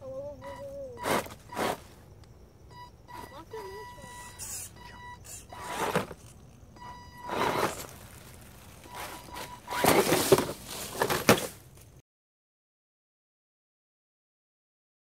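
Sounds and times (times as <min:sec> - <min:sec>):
electric motor high whine: 0:03.1 - 0:10.8
rustling over leaves and rock: 0:07.0 - 0:12.0.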